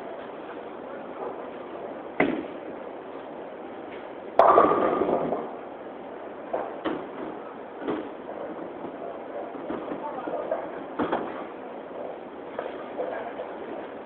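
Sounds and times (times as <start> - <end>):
bowling alley background noise: 0.0 - 14.0
bowling pins crashing: 4.4 - 5.7.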